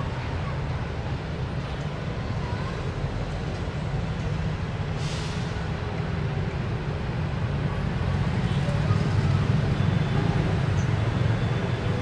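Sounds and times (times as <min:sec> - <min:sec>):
idling road traffic rumble: 0:00.0 - 0:12.0
brief hiss: 0:05.0 - 0:05.6.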